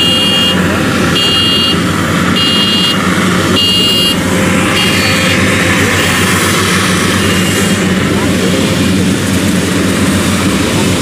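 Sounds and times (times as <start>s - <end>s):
warning buzzer beeps: 0.0s - 1.8s, 2.4s - 3.0s, 3.6s - 5.4s
combine harvester diesel engine: 0.0s - 11.0s.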